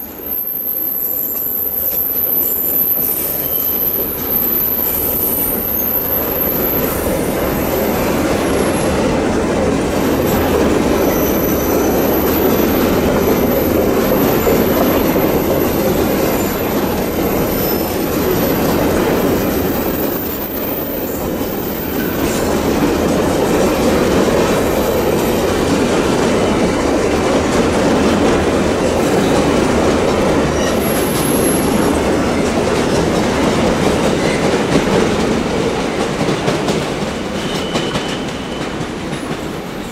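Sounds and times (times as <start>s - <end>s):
high wheel squeals: 0.0s - 9.0s, 10.0s - 22.8s, 30.5s - 32.4s, 37.4s - 38.8s
train wheels rumbling on rails: 0.0s - 39.9s.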